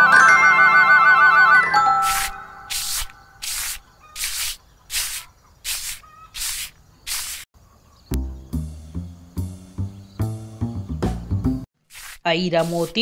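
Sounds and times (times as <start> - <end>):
broom sweeping dirt: 2.0 - 7.5, 11.8 - 13.0
music: 8.1 - 11.7.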